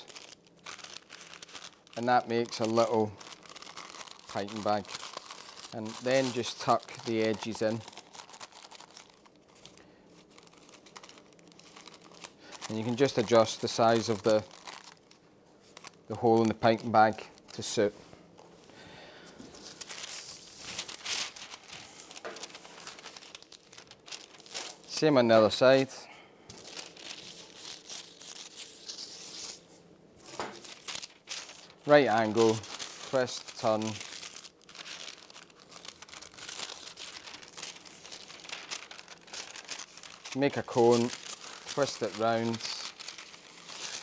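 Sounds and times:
paper rustling and crinkling: 0.0 - 18.6, 19.3 - 25.9, 26.5 - 44.0.

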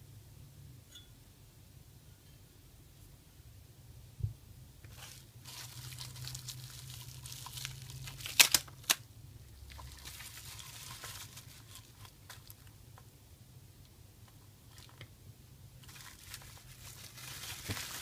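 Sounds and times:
bubble wrap crinkling: 4.9 - 9.0, 9.6 - 12.8, 14.7 - 15.1, 15.8 - 18.0.

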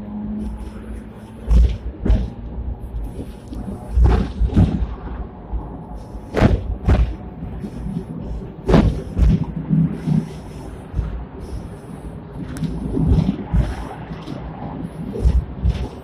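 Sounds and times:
tram rumbling on tracks: 0.0 - 16.0
steel wheels thudding over rail joints: 1.4 - 5.1, 6.2 - 11.8.

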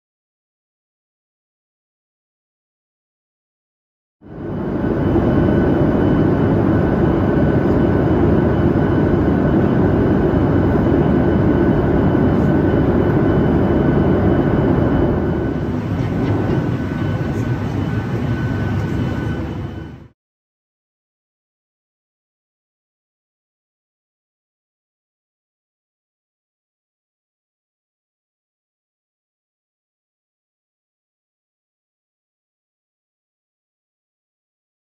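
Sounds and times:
jet engine rush: 4.3 - 20.1
thin steady whine: 4.3 - 20.2.

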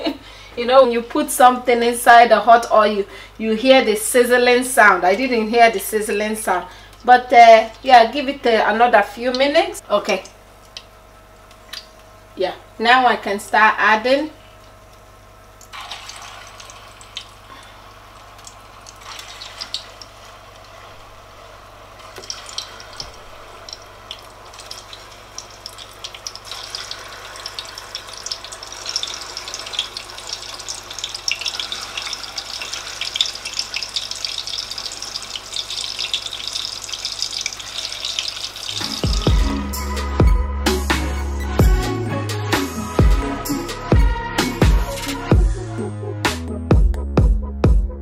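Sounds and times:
food deep-frying in oil: 14.9 - 39.1.

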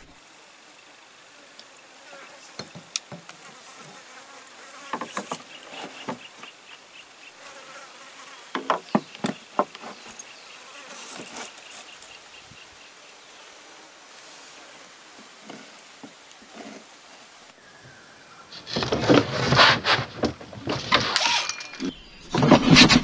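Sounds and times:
insects chirping: 0.0 - 18.3.

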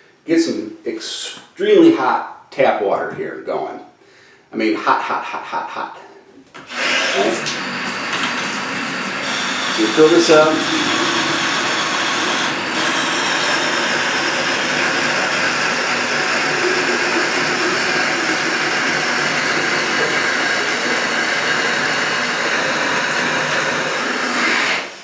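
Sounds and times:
tap water filling plastic bucket: 7.3 - 8.8.

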